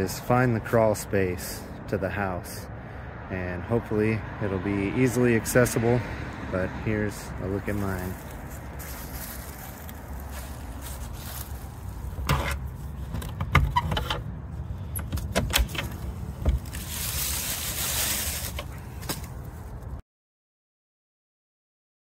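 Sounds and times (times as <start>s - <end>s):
metal latch clicking: 12.2s - 14.3s, 14.9s - 16.0s.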